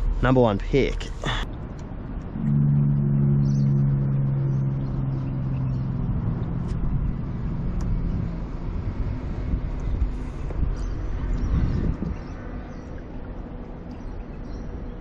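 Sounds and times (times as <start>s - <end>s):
engine humming: 0.0s - 15.0s.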